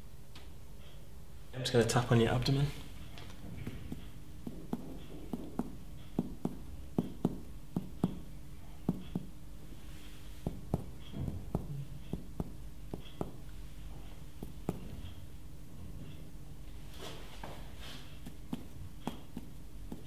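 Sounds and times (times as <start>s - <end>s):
finger tapping on abdomen: 3.6s - 9.4s, 10.4s - 15.2s, 18.2s - 20.0s.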